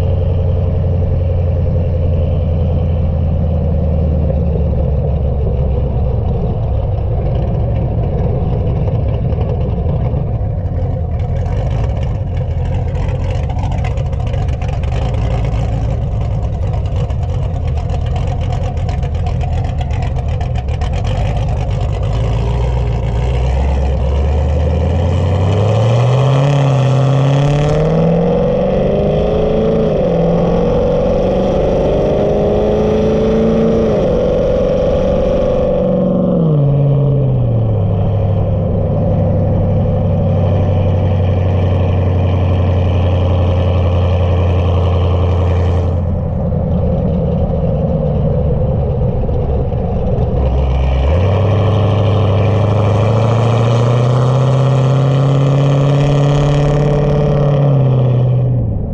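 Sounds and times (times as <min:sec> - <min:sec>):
car engine revving: 0:00.0 - 0:58.9.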